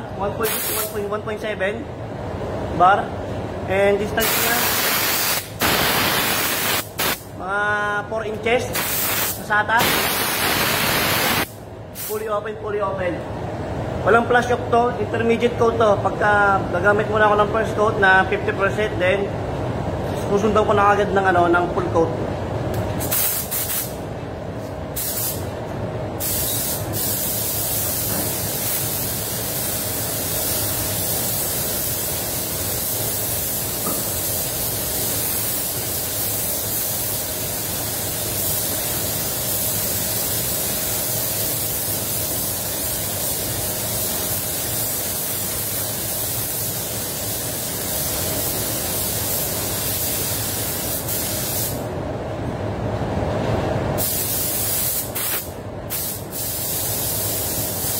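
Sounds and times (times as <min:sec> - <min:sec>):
spray gun air hissing: 0:00.4 - 0:01.0, 0:04.2 - 0:07.3, 0:08.7 - 0:12.3, 0:23.0 - 0:24.0, 0:24.9 - 0:25.5, 0:26.2 - 0:51.9, 0:54.0 - 0:57.9.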